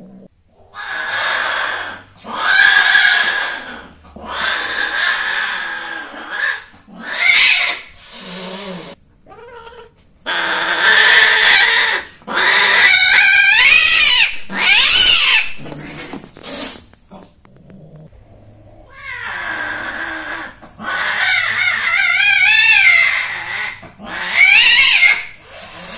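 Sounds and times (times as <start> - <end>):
cat growling: 0.0 - 25.9
cats yowling: 0.6 - 15.7, 18.6 - 25.9.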